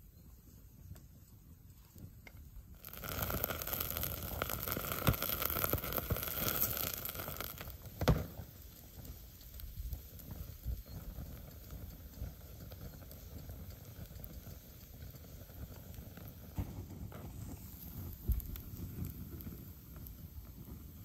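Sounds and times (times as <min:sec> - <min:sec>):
wood fire crackling: 0:00.3 - 0:21.0
bacon fat sizzling: 0:02.8 - 0:21.0.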